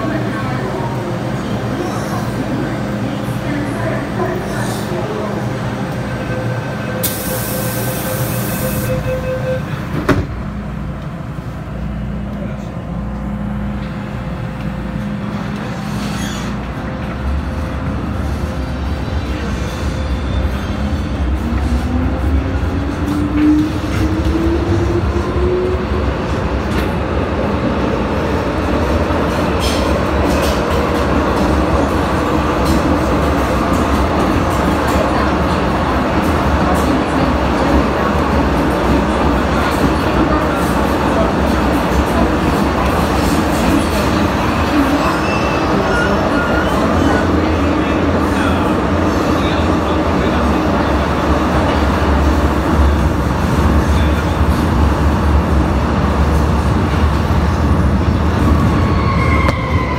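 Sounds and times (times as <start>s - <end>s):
train hum and tone: 0.0s - 59.9s
train door clunk: 9.6s - 10.5s.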